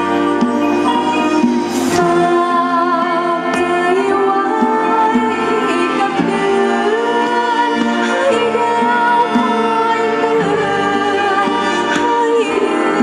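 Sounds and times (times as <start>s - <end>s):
live band with horns and drums: 0.0s - 13.0s
person singing: 0.0s - 13.0s.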